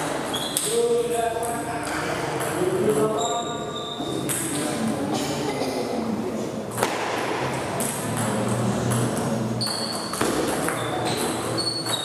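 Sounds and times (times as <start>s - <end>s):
table tennis ball hits: 4.2s - 4.6s, 6.7s - 12.0s.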